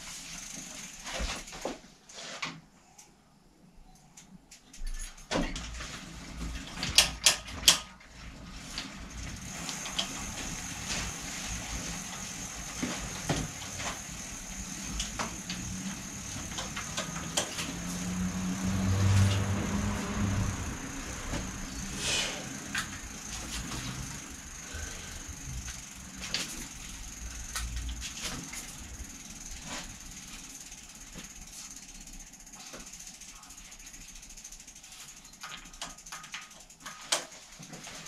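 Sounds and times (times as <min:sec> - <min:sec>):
tools clicking and knocking: 0:06.8 - 0:08.0.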